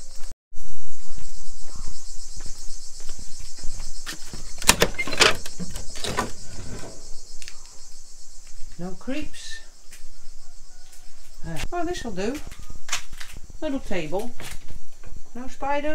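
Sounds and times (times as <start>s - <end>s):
insect chirring: 0.0s - 15.9s
metal slide bolt clicking and scraping: 4.6s - 7.2s.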